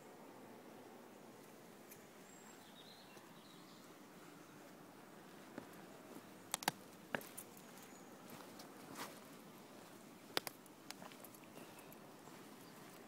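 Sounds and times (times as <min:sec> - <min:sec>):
faint outdoor hiss: 0:00.0 - 0:13.0
footsteps on stony ground: 0:05.4 - 0:13.0.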